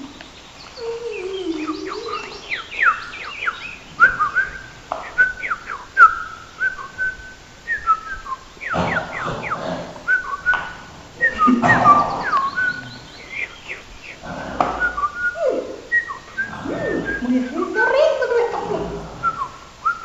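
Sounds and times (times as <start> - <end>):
bird-like whistled chirps: 0.0 - 18.3, 19.0 - 20.0
burst of noise: 2.6 - 17.6.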